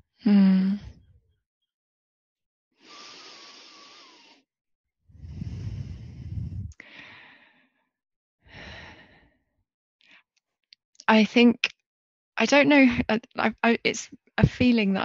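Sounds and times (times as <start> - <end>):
breath rumbling on microphone: 5.1 - 7.6
woman breathing out and sighing: 5.2 - 7.6.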